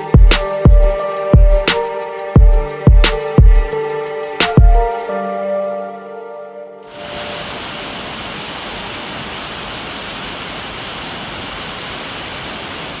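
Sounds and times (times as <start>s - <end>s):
waterfall rushing: 6.9s - 13.0s.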